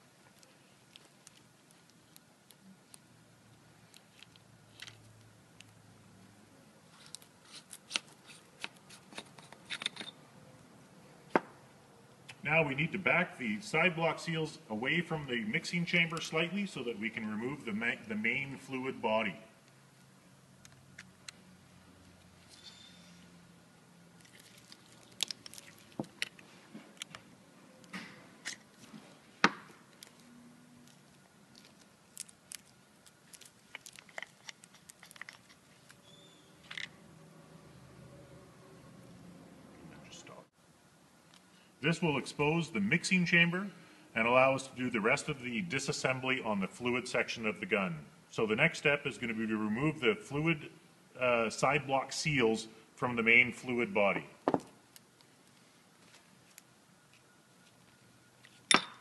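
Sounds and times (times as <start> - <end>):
faint clicks and knocks of parts: 0.2 - 6.3, 24.2 - 36.0, 41.2 - 41.7.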